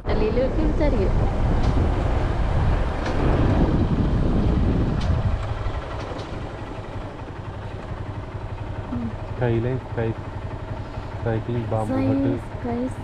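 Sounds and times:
wind rumble on microphone: 0.0s - 7.3s
road noise: 0.0s - 13.0s
vehicle engine running: 0.0s - 13.0s.

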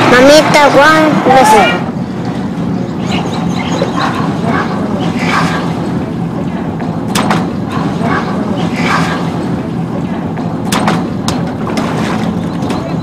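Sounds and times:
motorboat engine humming: 0.0s - 13.0s
sharp knock: 10.7s - 11.4s.

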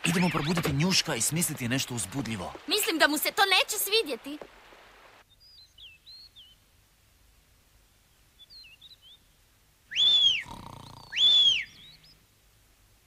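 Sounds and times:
faint bird chirps: 5.2s - 6.7s, 7.9s - 12.3s
rising and falling whistles: 9.9s - 10.5s, 11.1s - 12.0s
low snore: 10.3s - 11.2s.

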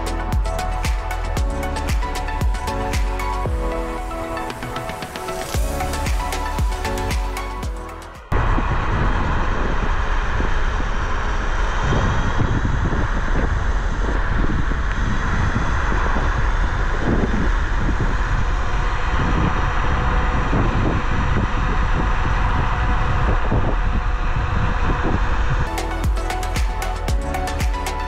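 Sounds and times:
heavy low rumble: 0.0s - 28.0s
wind noise on microphone: 0.0s - 28.0s.

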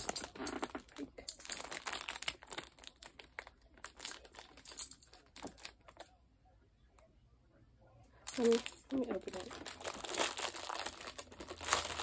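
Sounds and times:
plastic packaging crinkling: 0.0s - 6.1s, 8.3s - 12.0s.

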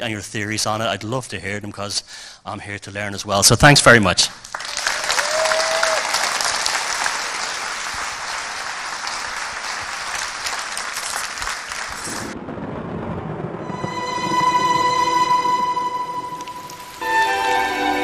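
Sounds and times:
audience applauding: 4.4s - 12.4s.

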